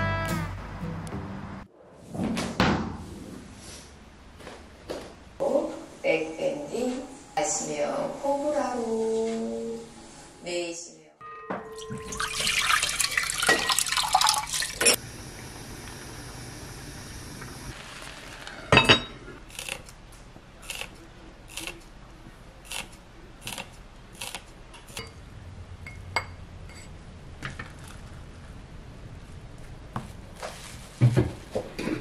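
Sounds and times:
water pouring into pot: 11.8 - 18.5.

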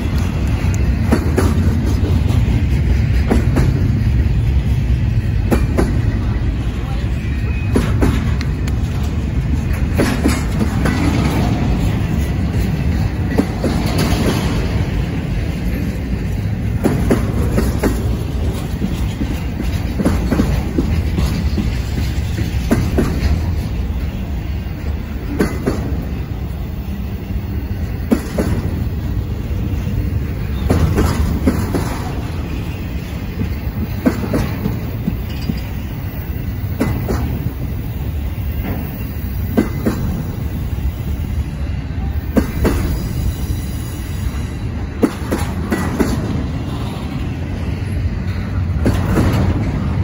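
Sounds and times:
wheels clicking and clacking: 0.0 - 6.2, 7.6 - 40.6
train wheels rumbling on rail: 0.0 - 50.0.

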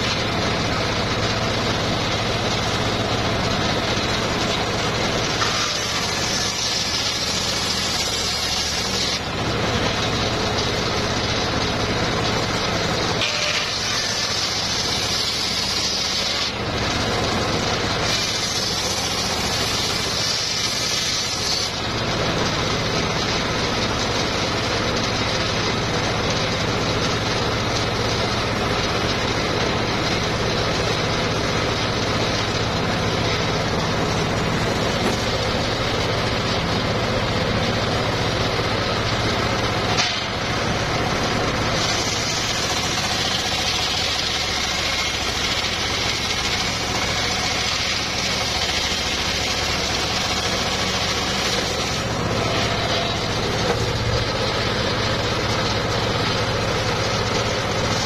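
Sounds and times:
circular saw running: 0.0 - 58.0
saw blade ripping wood: 3.8 - 10.1, 12.8 - 23.3, 33.2 - 36.6, 39.1 - 40.6, 41.5 - 55.6, 56.8 - 58.0.

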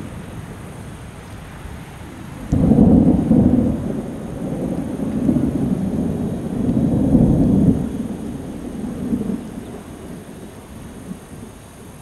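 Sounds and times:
thunder clap and rumble: 2.4 - 11.6.

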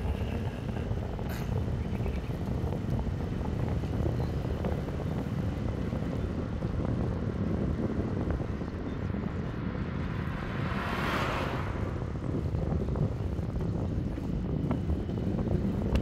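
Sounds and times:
low wind rumble on microphone: 0.0 - 16.0
passing vehicle rush: 5.3 - 16.0.

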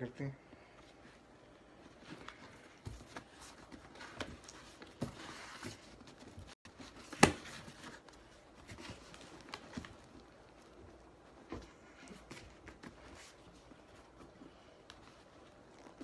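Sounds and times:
hands scraping cardboard and straps: 2.0 - 10.0.

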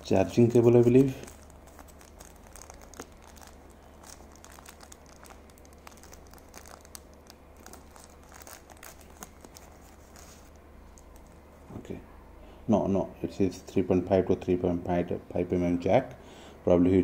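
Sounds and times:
wrapper crinkling: 0.0 - 11.4
low steady hum: 0.0 - 17.0.

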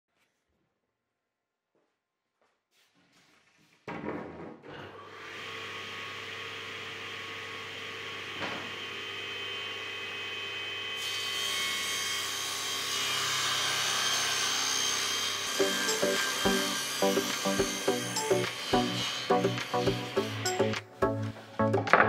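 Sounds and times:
table saw whining: 5.1 - 21.8
saw blade cutting plywood: 11.0 - 21.2.

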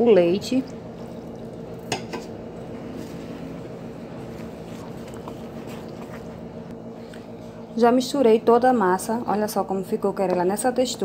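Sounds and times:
steady low hum: 0.0 - 11.0
wooden spoon stirring in bowl: 0.9 - 6.7.

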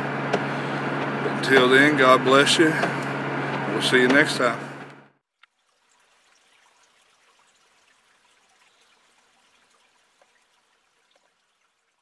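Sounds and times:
small stream trickling: 5.2 - 12.0
water drips: 5.4 - 12.0.

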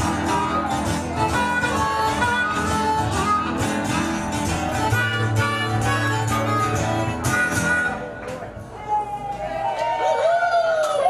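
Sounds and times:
harmonica into a microphone: 0.0 - 8.5
strummed guitar: 0.0 - 8.8.

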